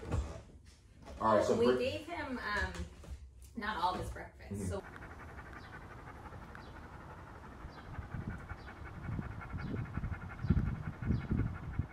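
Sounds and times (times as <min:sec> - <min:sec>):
dog panting: 0:04.5 - 0:11.9.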